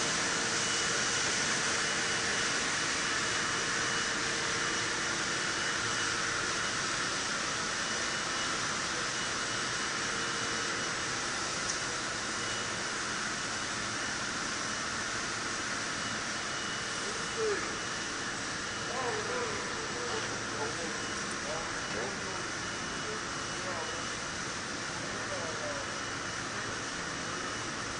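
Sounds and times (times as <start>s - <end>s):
faint high whine: 0.0s - 27.9s.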